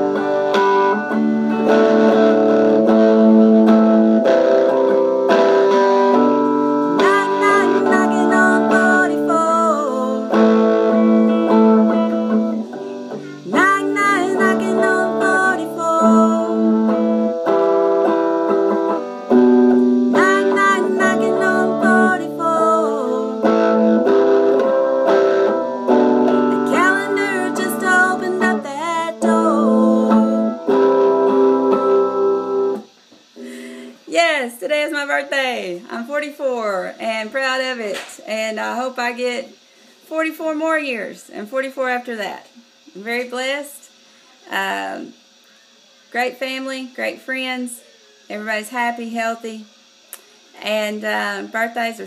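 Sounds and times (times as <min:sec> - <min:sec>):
strummed guitar chords: 0:00.0 - 0:34.0
person singing long notes: 0:07.0 - 0:12.6, 0:13.2 - 0:17.4, 0:20.1 - 0:24.0, 0:26.3 - 0:32.5.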